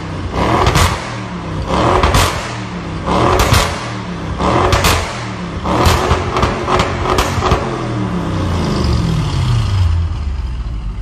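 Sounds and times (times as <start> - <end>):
exhaust cracks: 0.0 - 8.6
car engine revving: 0.0 - 11.0.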